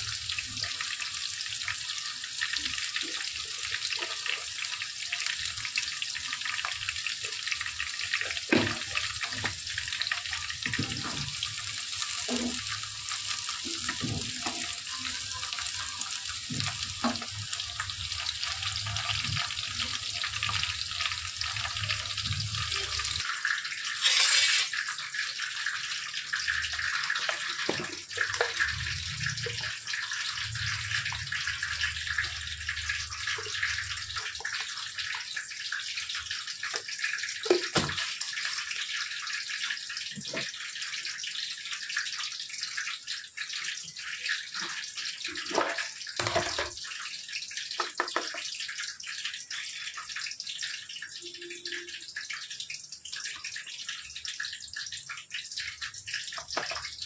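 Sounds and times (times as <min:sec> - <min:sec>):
onions sizzling in oil: 0:00.0 - 0:40.8.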